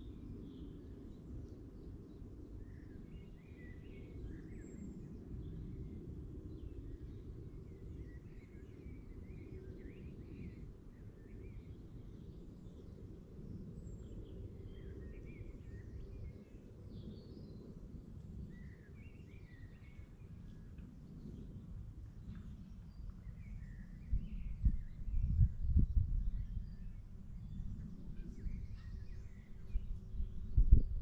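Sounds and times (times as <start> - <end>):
birds singing and chirping: 13.5 - 17.8, 18.4 - 31.0
steady low rumble: 19.8 - 31.0.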